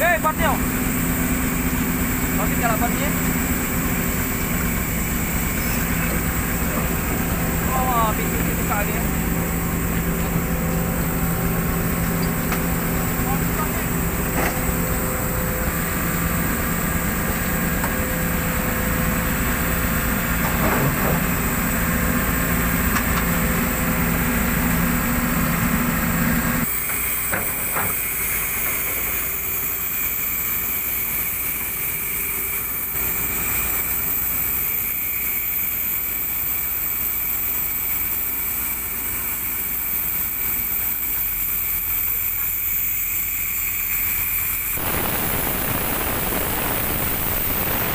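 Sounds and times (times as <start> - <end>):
excavator diesel engines droning: 0.0 - 47.9
steady hiss: 28.2 - 47.9.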